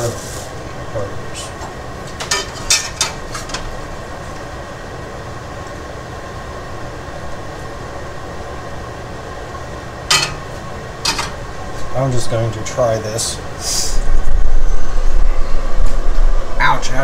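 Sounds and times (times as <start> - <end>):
mechanical hum with hiss: 0.0 - 17.0.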